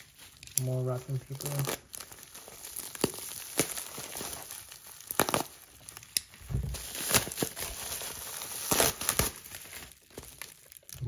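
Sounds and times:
bubble wrap crinkling: 0.0s - 11.0s
soft low thump: 6.4s - 6.8s.

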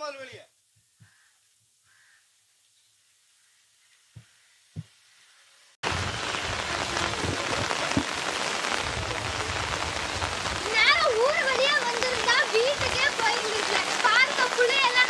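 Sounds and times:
rain falling: 5.5s - 15.0s.

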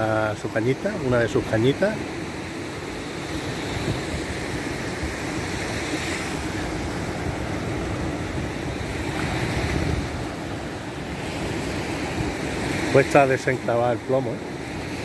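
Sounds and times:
surf washing onto beach: 0.0s - 15.0s
wind buffeting microphone: 2.9s - 13.6s.

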